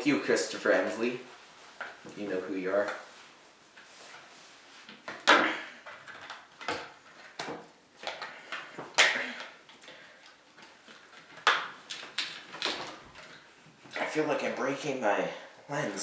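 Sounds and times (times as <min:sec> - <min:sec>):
plastic rustles and clicks: 0:03.7 - 0:14.1.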